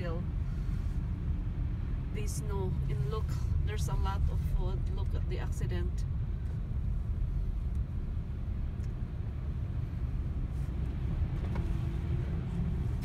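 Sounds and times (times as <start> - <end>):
car engine rumble: 0.0 - 13.0
tyre noise from road: 9.0 - 13.0.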